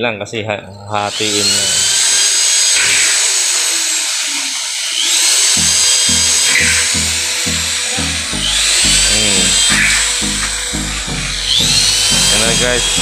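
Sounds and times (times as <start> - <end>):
high-pitched whir: 0.7 - 13.0
background music with low beat: 5.5 - 13.0.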